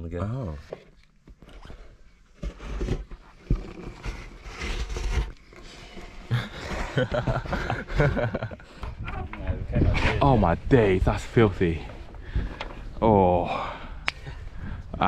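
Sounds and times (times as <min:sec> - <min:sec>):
plastic card scraping wax: 0:00.9 - 0:07.7.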